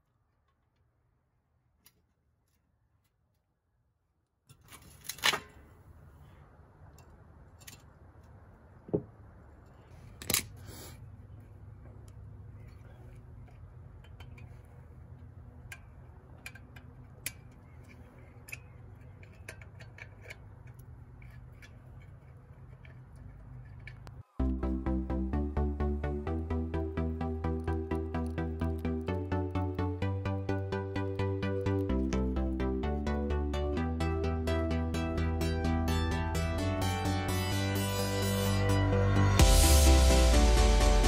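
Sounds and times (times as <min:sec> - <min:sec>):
metal tools clinking on wheel hub: 0:12.6 - 0:24.1
steady low rumble: 0:23.6 - 0:41.0.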